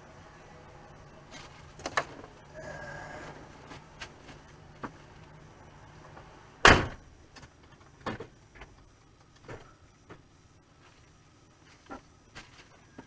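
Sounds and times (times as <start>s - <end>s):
loud thump: 6.6s - 7.0s.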